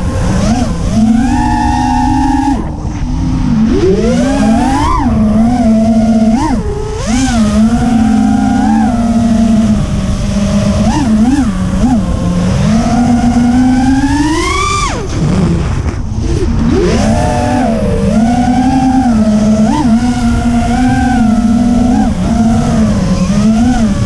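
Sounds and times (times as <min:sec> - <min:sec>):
drone motors whining: 0:00.0 - 0:24.0.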